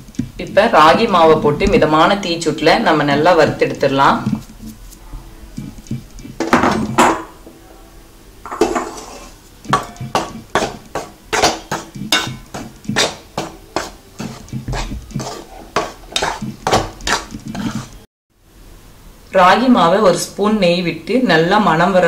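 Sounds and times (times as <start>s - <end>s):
metal ladle scraping a pan: 8.4s - 18.0s.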